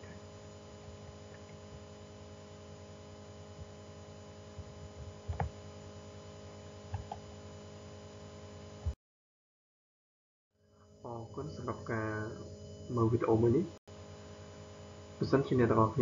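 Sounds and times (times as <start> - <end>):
electrical mains hum: 0.0 - 9.0, 10.7 - 16.0.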